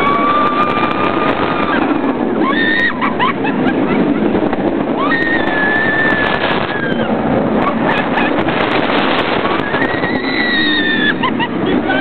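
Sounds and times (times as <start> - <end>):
riders screaming: 0.0 - 3.4, 4.8 - 7.8, 9.6 - 12.0
roller coaster roaring on track: 0.0 - 12.0
wind rushing over microphone: 0.0 - 12.0.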